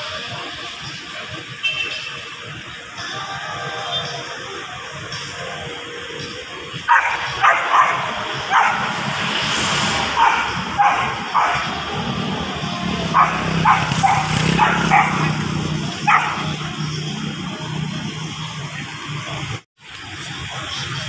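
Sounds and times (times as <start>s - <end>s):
low hum of traffic: 0.0s - 21.0s.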